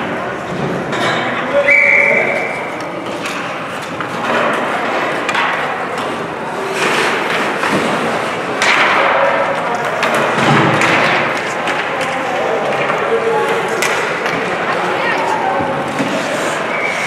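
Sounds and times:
skates scraping on ice: 0:02.4 - 0:17.0
hockey stick and puck knocks: 0:06.8 - 0:13.1.

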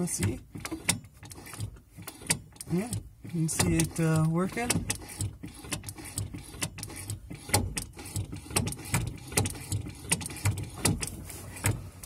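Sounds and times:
clutch pedal clicks and metallic knocks: 0:00.0 - 0:11.8.

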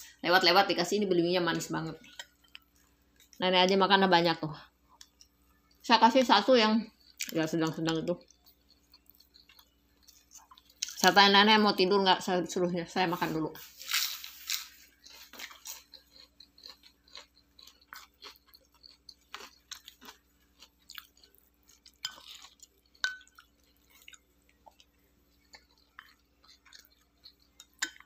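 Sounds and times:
person chewing food: 0:02.0 - 0:03.4, 0:04.9 - 0:05.8, 0:06.9 - 0:11.1, 0:13.7 - 0:28.0.

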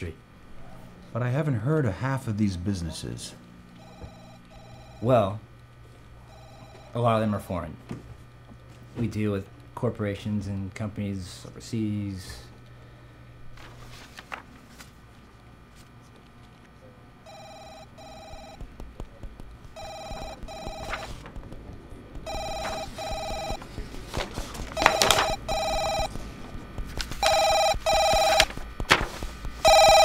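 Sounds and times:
telephone double ring: 0:19.8 - 0:21.1, 0:22.3 - 0:23.6, 0:24.8 - 0:26.1, 0:27.2 - 0:28.5, 0:29.6 - 0:30.0.

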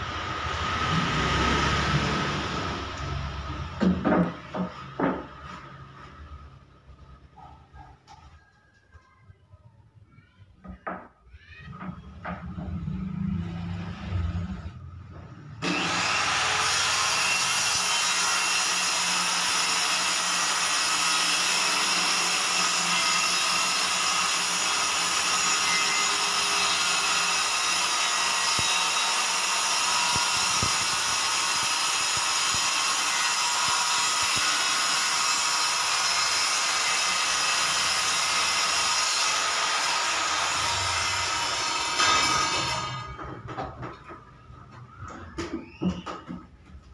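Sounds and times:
circular saw cutting plywood: 0:15.6 - 0:43.2.

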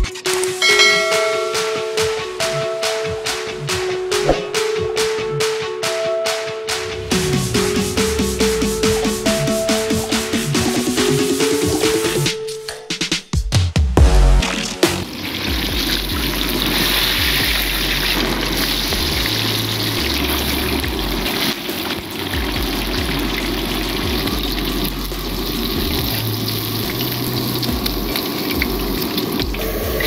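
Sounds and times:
fish deep-frying in oil: 0:15.0 - 0:30.0.

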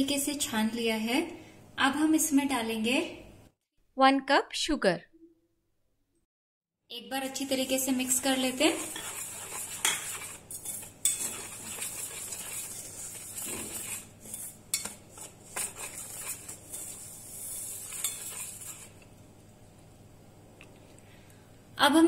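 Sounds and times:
whisk scraping in metal bowl: 0:07.2 - 0:19.1.

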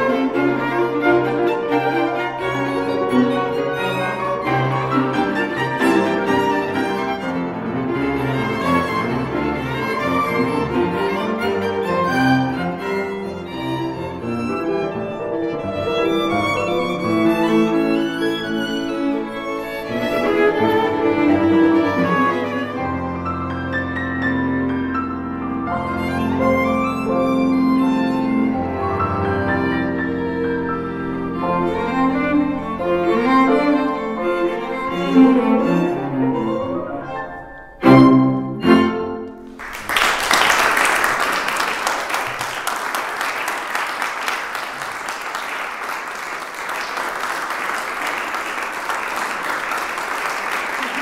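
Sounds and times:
piano quintet playing: 0:00.0 - 0:39.9
audience applause: 0:39.5 - 0:51.0.

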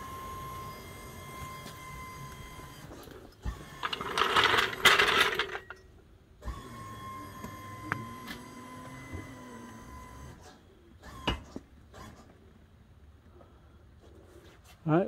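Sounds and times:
hydraulic pump whining: 0:00.0 - 0:10.4.

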